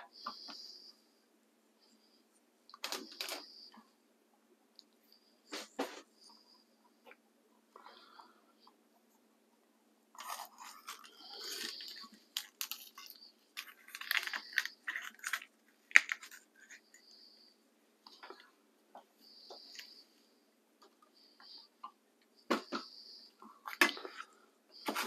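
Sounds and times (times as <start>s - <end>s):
blade scraping seeds: 10.2s - 17.2s.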